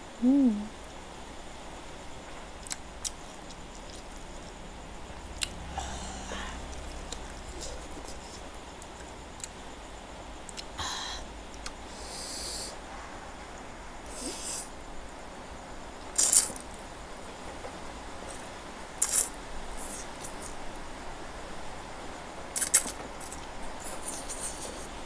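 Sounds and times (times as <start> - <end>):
chewing: 19.0 - 20.5, 22.6 - 24.9.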